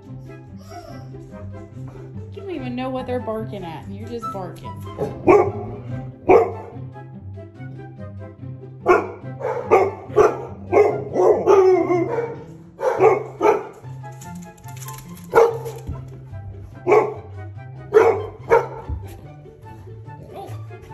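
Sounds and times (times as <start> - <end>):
background music: 0.0 - 20.9
dog barking: 4.9 - 6.8, 8.8 - 13.9, 15.0 - 15.9, 16.8 - 19.0.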